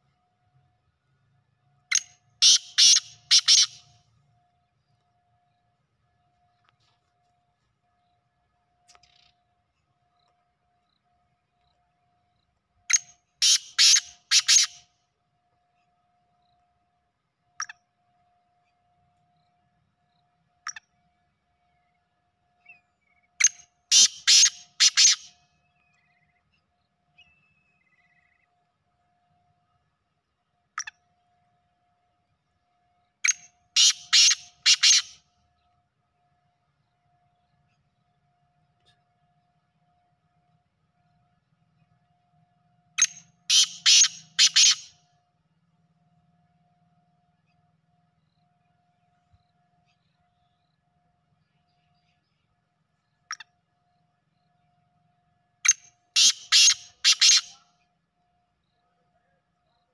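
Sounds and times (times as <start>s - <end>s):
francolin calling: 1.9s - 3.9s, 12.9s - 14.8s, 23.0s - 26.4s, 33.2s - 35.2s, 43.0s - 45.0s, 55.6s - 57.6s.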